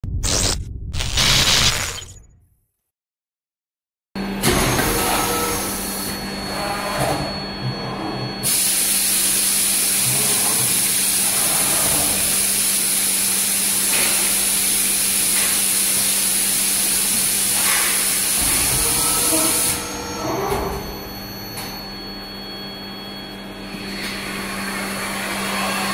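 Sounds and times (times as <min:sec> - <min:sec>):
low machine hum: 0:18.3 - 0:25.7.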